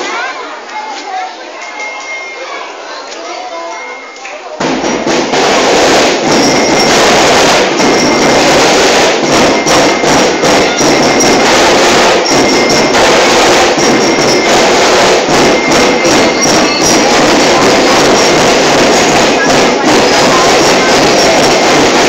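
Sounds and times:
drum and bugle corps playing: 4.6s - 22.0s.

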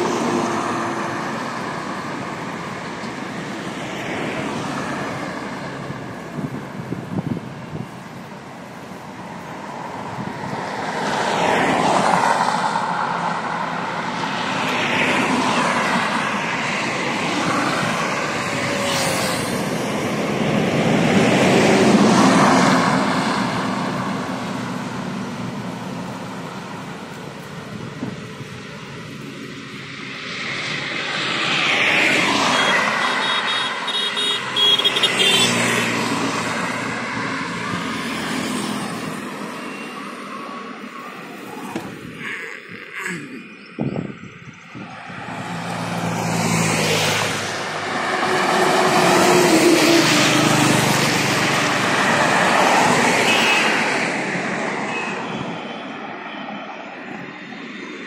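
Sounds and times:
cars and trucks passing: 0.0s - 58.0s
heavy truck passing: 9.0s - 41.2s, 45.0s - 55.5s.

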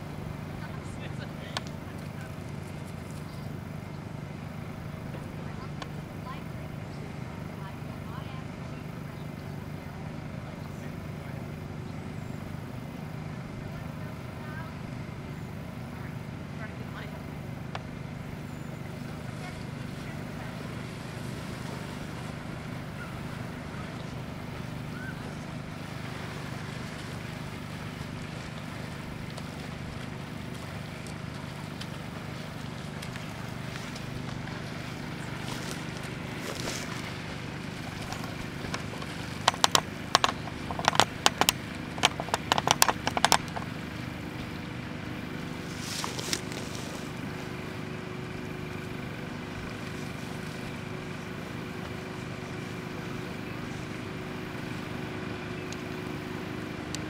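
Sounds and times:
engine hum: 0.0s - 57.0s
sharp clicks or knocks: 38.2s - 43.7s.

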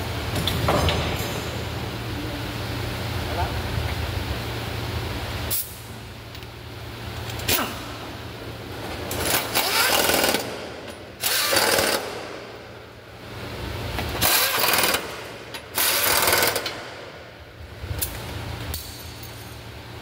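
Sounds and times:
pneumatic impact wrench: 5.5s - 5.8s, 9.1s - 12.6s, 14.1s - 17.0s.

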